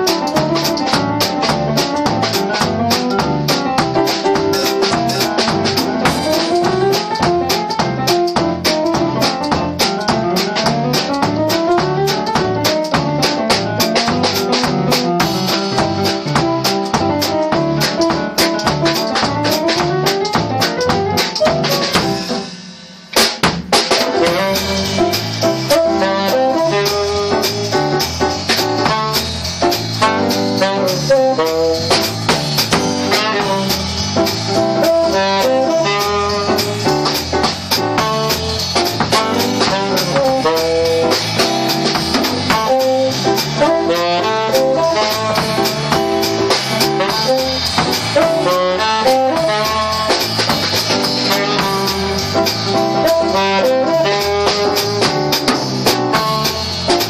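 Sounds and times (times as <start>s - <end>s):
drum kit: 0.0s - 57.0s
saxophone melody: 24.0s - 57.0s.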